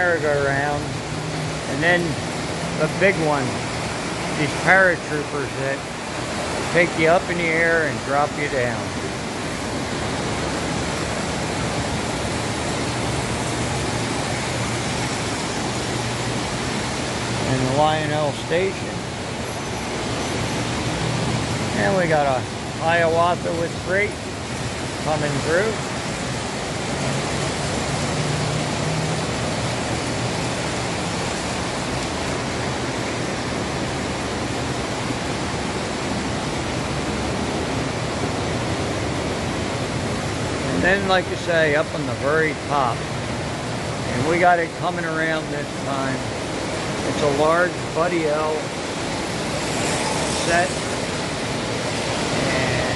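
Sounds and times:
model trains running on track: 47.7 - 52.9.

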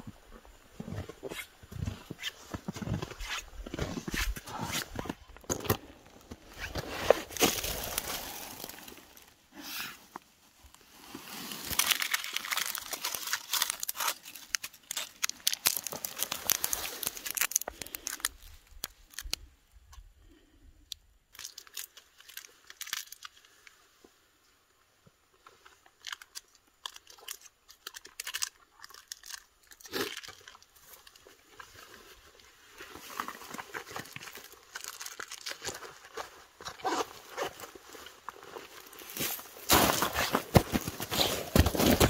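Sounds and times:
boots crunching on snow: 0.7 - 5.2, 6.2 - 9.0, 38.8 - 42.0
plastic wrapper crinkling: 11.5 - 19.4, 26.0 - 31.1, 33.7 - 36.2.

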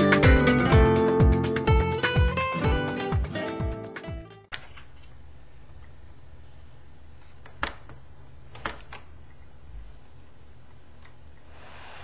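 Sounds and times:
acoustic guitar music: 0.0 - 4.5.

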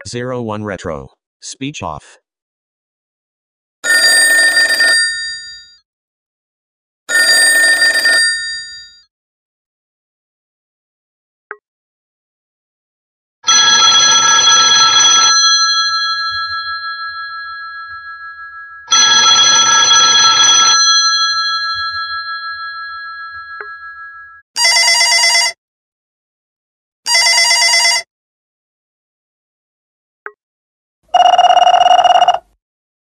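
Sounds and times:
telephone bell ringing: 3.8 - 5.8, 7.1 - 9.0, 13.4 - 25.6, 27.1 - 28.1, 31.1 - 32.5
buzzy trilling phone ring: 13.5 - 25.5, 31.1 - 32.5.

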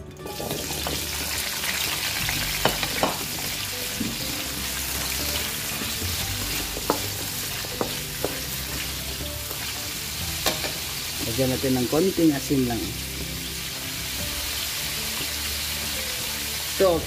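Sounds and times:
vegetables sizzling in oil: 0.2 - 17.0
spatula knocking against wok: 6.7 - 8.5.

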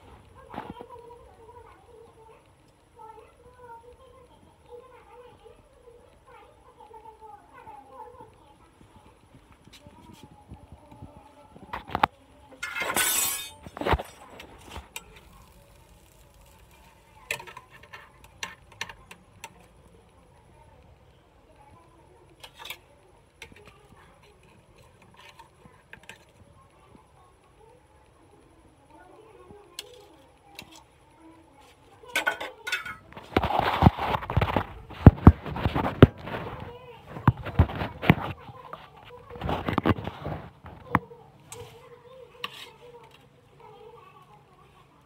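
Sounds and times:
metal tongs clinking on a plate: 12.6 - 15.6, 32.1 - 33.1.

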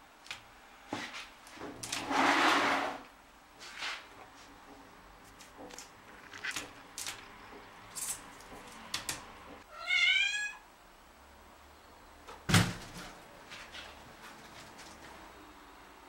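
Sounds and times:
cat meowing: 9.7 - 10.6.

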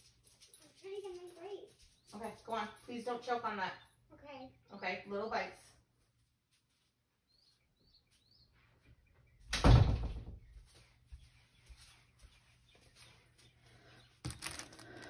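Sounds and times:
door shutting with heavy thump: 9.6 - 10.4.

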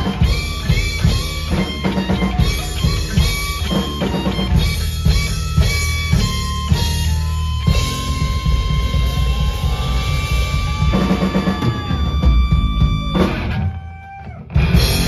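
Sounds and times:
bass guitar: 0.0 - 15.0
drum kit: 0.0 - 15.0
electric guitar riff: 0.0 - 15.0.

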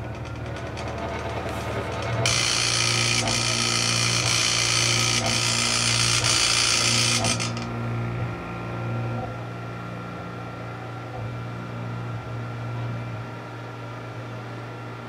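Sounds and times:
stepper motor high-pitched noise: 2.2 - 7.7.

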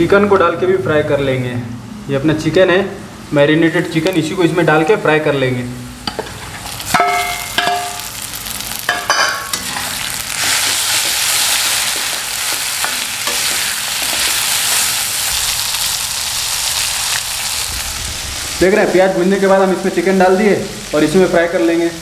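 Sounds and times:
chicken sizzling in hot oil: 6.6 - 22.0.

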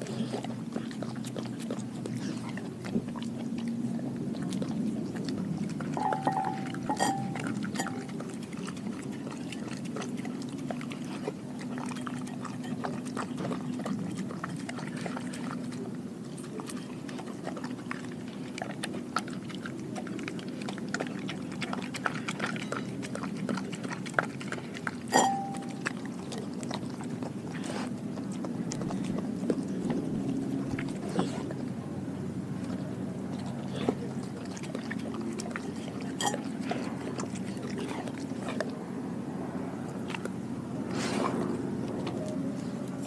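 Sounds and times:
dog licking and lapping: 0.0 - 43.0
glass bowl clink: 6.0 - 8.1, 25.1 - 25.8, 36.2 - 36.4.

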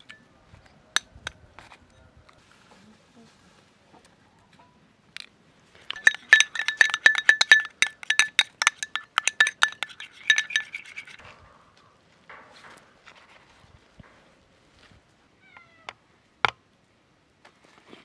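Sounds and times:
spoon clinking against glass bowl: 5.9 - 11.2.

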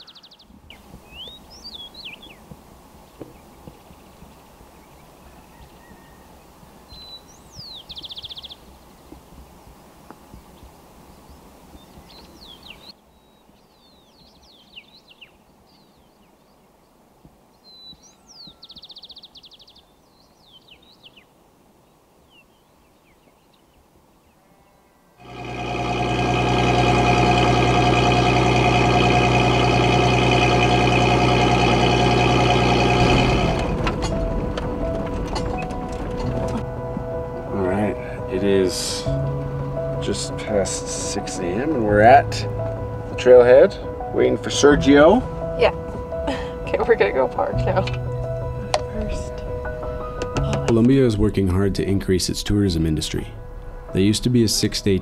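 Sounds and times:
birds chirping and trilling: 0.0 - 2.4, 3.1 - 9.0, 11.2 - 16.8, 17.6 - 21.3
low steady hiss: 0.4 - 5.6, 6.2 - 24.4
truck engine idling: 25.2 - 49.2.

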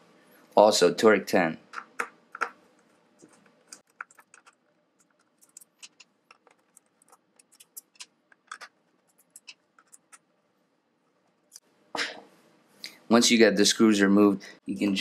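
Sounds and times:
screwdriver clicking and scratching: 3.2 - 10.2.

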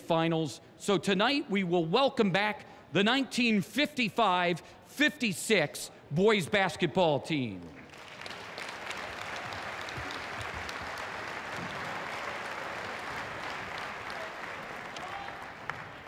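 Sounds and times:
crowd applauding: 7.8 - 16.0.

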